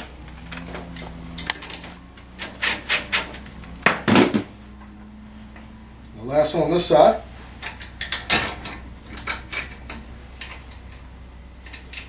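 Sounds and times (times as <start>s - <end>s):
metal scraping clunk: 0.0s - 5.7s, 7.3s - 11.1s.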